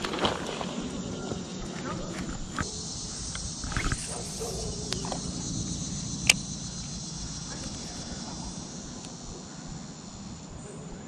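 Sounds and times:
insects chirring: 0:00.0 - 0:11.0
sharp click: 0:06.2 - 0:06.5.

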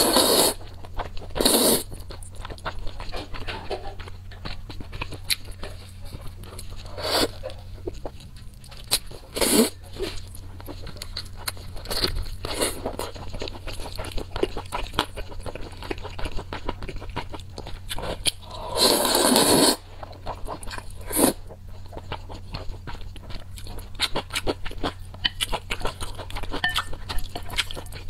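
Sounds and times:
slurping noodles: 0:00.0 - 0:00.6, 0:01.4 - 0:01.9, 0:06.8 - 0:07.4, 0:09.3 - 0:10.2, 0:18.4 - 0:19.8, 0:21.0 - 0:21.4
wet chewing and biting: 0:00.0 - 0:28.0.

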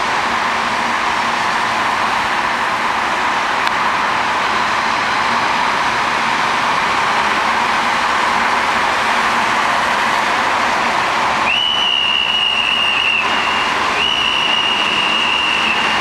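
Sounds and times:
road traffic rushing: 0:00.0 - 0:16.0
whistle blast: 0:11.4 - 0:16.0.

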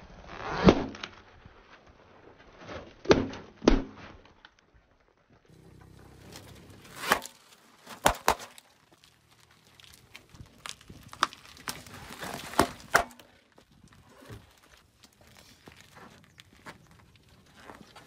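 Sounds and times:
low hum: 0:05.5 - 0:07.5
objects popping under car tyre: 0:05.5 - 0:18.0.

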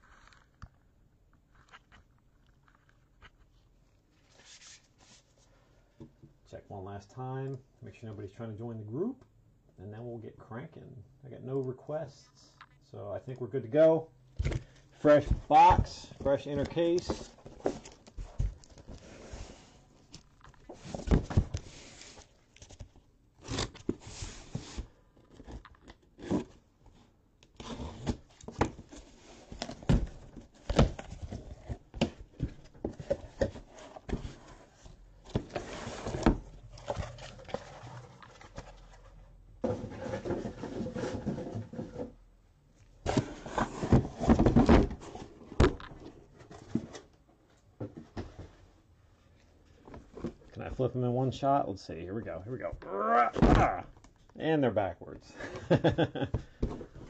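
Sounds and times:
cardboard knocks and thumps: 0:14.4 - 0:19.0, 0:20.7 - 0:21.6, 0:43.0 - 0:45.9, 0:56.2 - 0:57.0
cardboard scraping: 0:14.4 - 0:22.8, 0:23.4 - 0:42.2, 0:43.0 - 0:47.2
cardboard rustling: 0:14.4 - 0:42.2, 0:43.0 - 0:48.7, 0:55.8 - 0:57.0.

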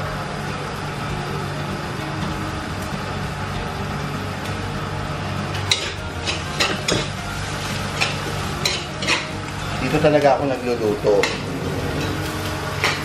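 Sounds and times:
food frying: 0:00.0 - 0:13.0
low mechanical hum: 0:00.0 - 0:13.0
metal spatula scraping a wok: 0:11.2 - 0:13.0.

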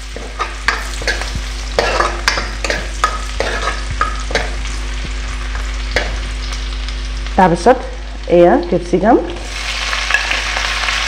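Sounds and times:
steel spoon scraping wok: 0:00.0 - 0:04.9, 0:09.4 - 0:11.0
garlic sizzling in hot oil: 0:00.0 - 0:11.0.

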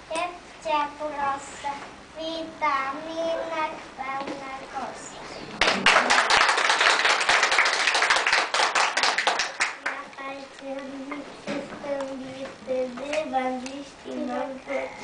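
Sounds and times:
child singing: 0:00.1 - 0:05.1, 0:09.8 - 0:15.0
group clapping: 0:05.5 - 0:10.3.

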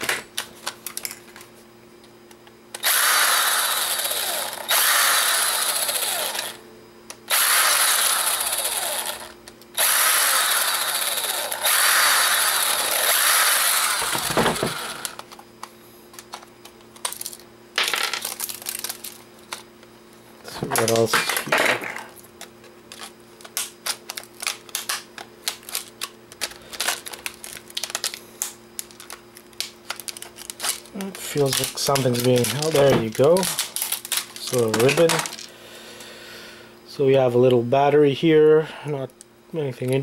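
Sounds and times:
electric screwdriver running: 0:02.8 - 0:06.6, 0:07.3 - 0:15.3.

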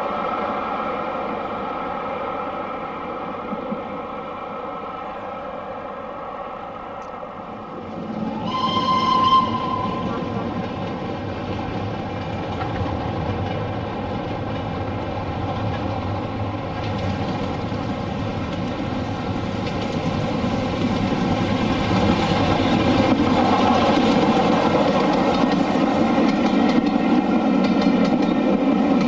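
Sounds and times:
steam locomotive running: 0:00.0 - 0:29.0
train rail noise: 0:00.0 - 0:29.0
high whistle: 0:08.2 - 0:10.4.

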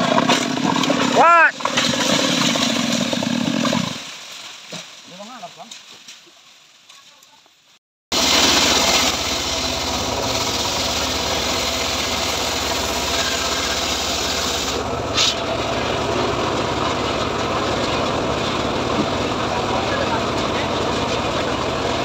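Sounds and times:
circular saw cutting log: 0:00.0 - 0:04.1, 0:08.1 - 0:22.0
high-pitched saw burst: 0:08.2 - 0:15.5.

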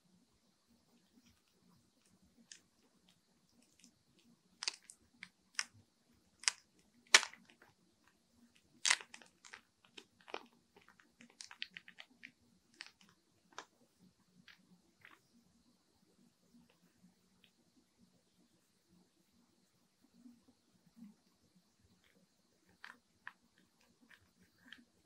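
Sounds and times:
plastic sleeve crinkling: 0:04.6 - 0:05.7, 0:06.4 - 0:07.7, 0:08.8 - 0:13.7.

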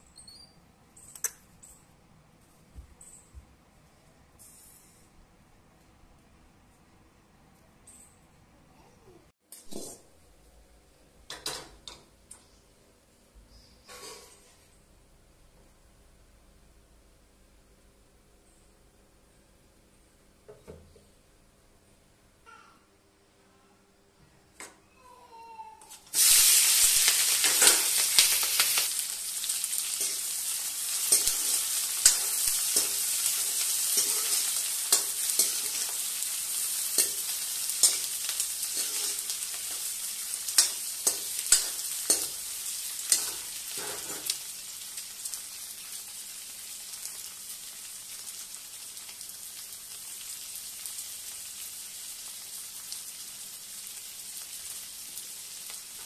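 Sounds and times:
chillies sizzling in hot oil: 0:26.1 - 0:56.0
ladle clinking and scraping pan: 0:31.0 - 0:36.0, 0:36.9 - 0:39.3, 0:43.1 - 0:44.3.

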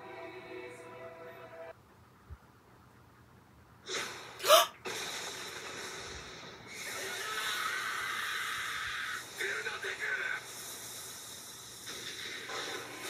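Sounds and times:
music: 0:00.0 - 0:01.7, 0:12.3 - 0:13.0.

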